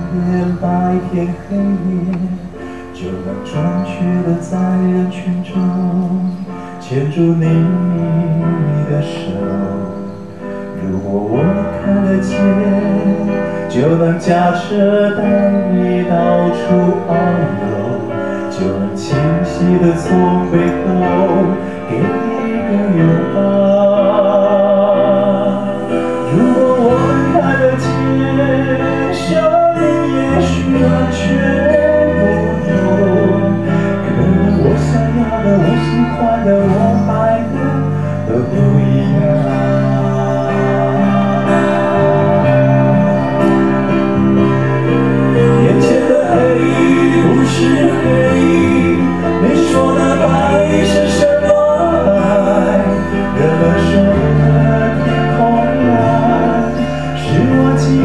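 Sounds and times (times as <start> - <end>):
instrumental accompaniment: 0.0 - 58.0
man singing into a microphone: 0.0 - 58.0.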